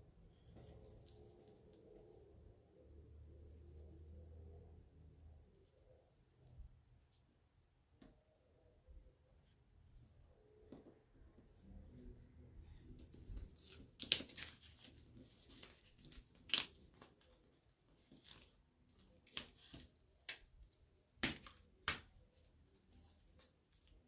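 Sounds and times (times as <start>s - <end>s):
adhesive sheet crinkling: 13.0s - 20.4s.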